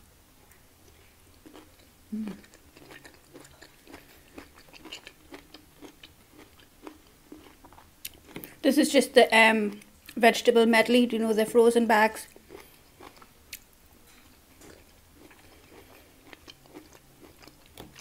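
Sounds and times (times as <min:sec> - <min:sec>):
close chewing with wet mouth clicks: 0:00.9 - 0:08.6, 0:12.2 - 0:13.8, 0:14.6 - 0:18.0
person humming: 0:02.1 - 0:02.5.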